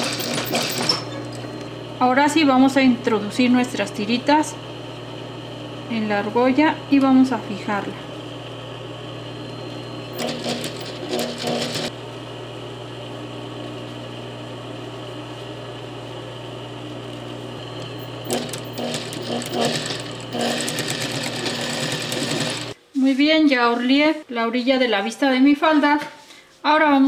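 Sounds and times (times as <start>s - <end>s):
sewing machine stitching: 0.0s - 1.6s, 10.0s - 11.9s, 17.8s - 22.8s
motor low hum: 0.0s - 22.8s.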